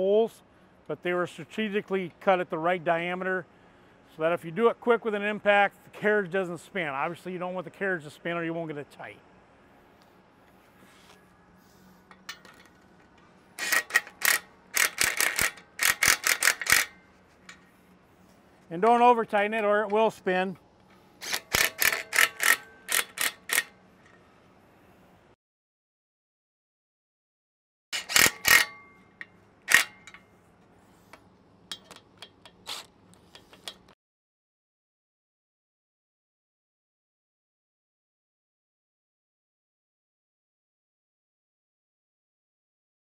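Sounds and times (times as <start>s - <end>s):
metal parts clicking: 12.1s - 17.7s, 21.2s - 24.2s, 28.0s - 30.2s
impact driver bursts: 13.6s - 17.0s, 21.2s - 23.7s, 28.0s - 28.7s
impact driver hammering: 21.2s - 23.7s.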